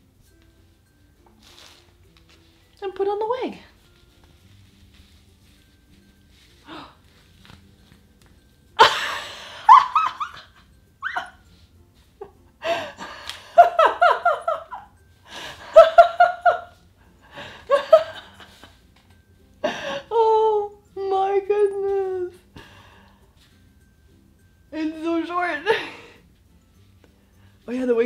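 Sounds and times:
woman laughing: 0:08.8 - 0:11.4, 0:12.2 - 0:14.9, 0:15.6 - 0:16.8, 0:17.7 - 0:18.8.

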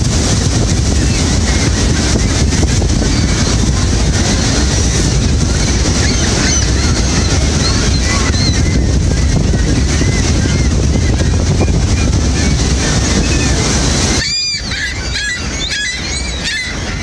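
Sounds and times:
waterfall roar: 0:00.0 - 0:17.0
gull calls: 0:05.6 - 0:11.4, 0:14.2 - 0:17.0.

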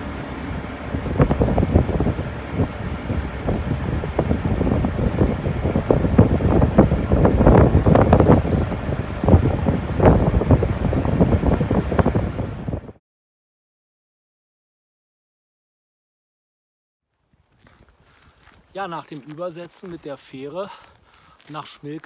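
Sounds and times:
ferry engine running: 0:00.0 - 0:13.0
wind buffeting microphone: 0:00.0 - 0:13.0.

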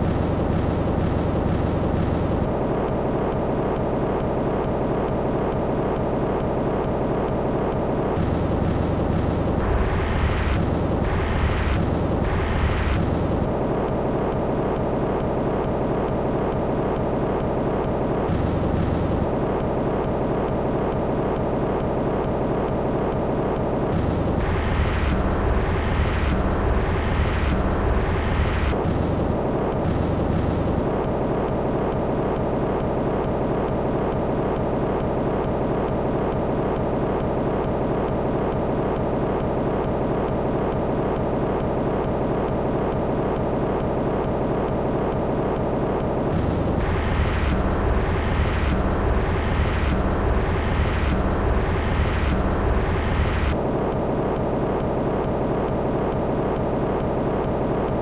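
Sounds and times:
dense rumbling noise drone: 0:08.2 - 0:13.6, 0:23.9 - 0:31.1, 0:46.1 - 0:53.8.

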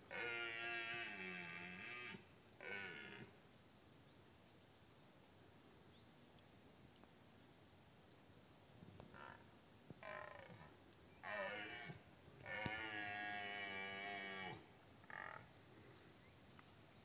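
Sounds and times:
deer stag roaring: 0:00.1 - 0:03.3, 0:11.2 - 0:15.4.

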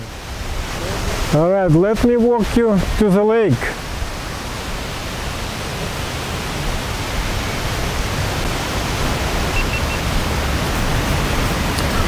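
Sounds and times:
wind buffeting microphone: 0:03.8 - 0:12.0.

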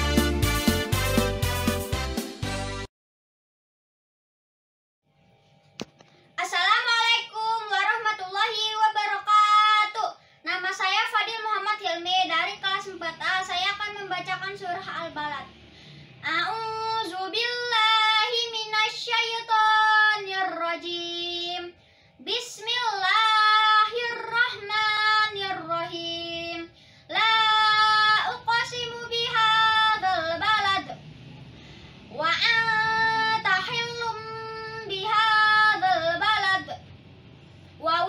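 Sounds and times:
boy chanting recitation: 0:06.4 - 0:15.6, 0:16.2 - 0:31.0, 0:32.1 - 0:36.9.

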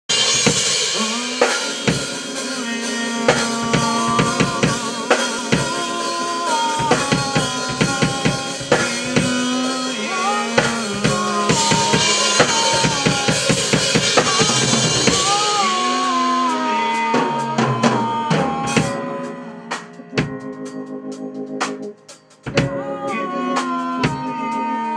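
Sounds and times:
electric bass line: 0:00.1 - 0:19.0
funk band playing: 0:00.1 - 0:24.9.

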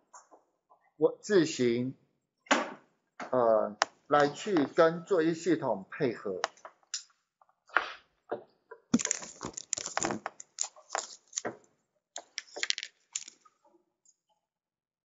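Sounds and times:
sharp clicks and crackles: 0:08.9 - 0:11.6, 0:12.2 - 0:13.5.

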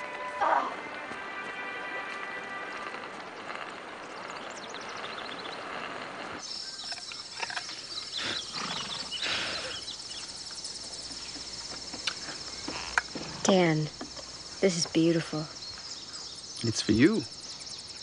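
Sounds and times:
insects chirring: 0:02.7 - 0:18.0.

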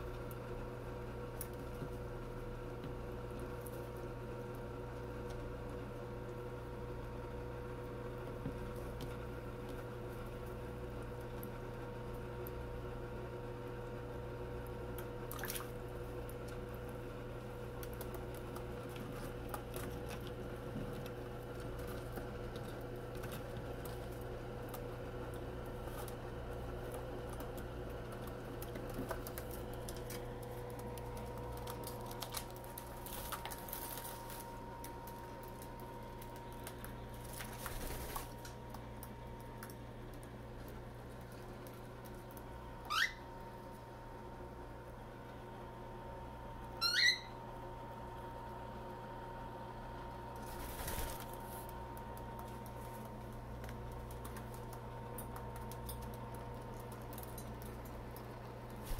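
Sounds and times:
steady low hum: 0:00.0 - 0:58.9
birds splashing in water: 0:15.2 - 0:15.8
bird chirp: 0:46.8 - 0:47.4.

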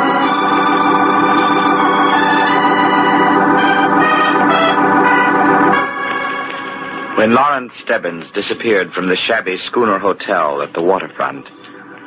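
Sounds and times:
sustained organ chord: 0:00.0 - 0:07.5.

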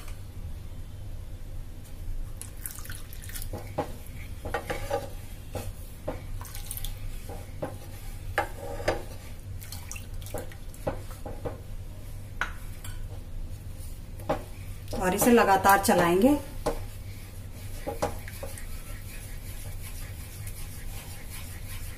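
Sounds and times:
low steady hum: 0:00.0 - 0:21.9
wooden spatula scraping metal pan: 0:03.5 - 0:05.9, 0:07.0 - 0:09.4, 0:13.9 - 0:21.9.

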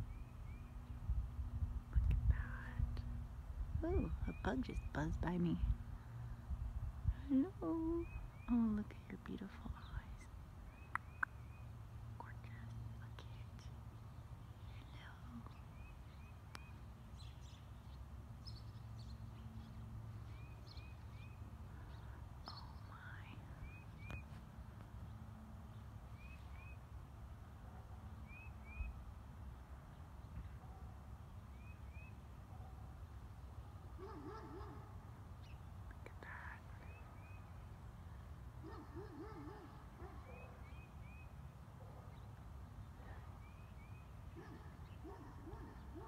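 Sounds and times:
steady low rumble: 0:00.0 - 0:17.0
small birds chirping: 0:03.8 - 0:27.0, 0:27.8 - 0:46.0.

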